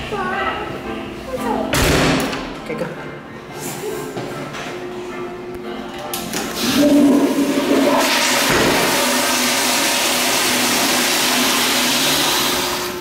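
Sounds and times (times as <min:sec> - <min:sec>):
toilet flushing: 0:06.3 - 0:13.0.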